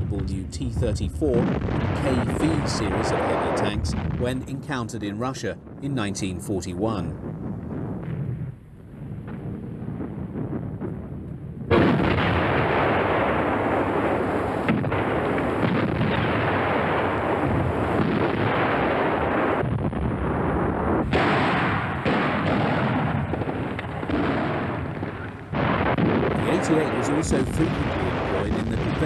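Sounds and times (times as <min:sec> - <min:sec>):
gun reports: 0:00.0 - 0:07.2, 0:26.3 - 0:29.0
artillery fire and explosions: 0:00.0 - 0:29.0.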